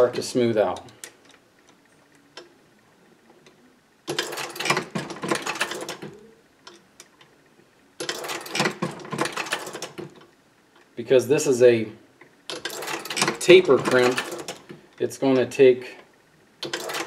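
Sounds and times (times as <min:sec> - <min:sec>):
reloading press clicking and rattling: 0:04.1 - 0:06.8, 0:08.0 - 0:10.3, 0:12.5 - 0:14.8, 0:16.6 - 0:17.0.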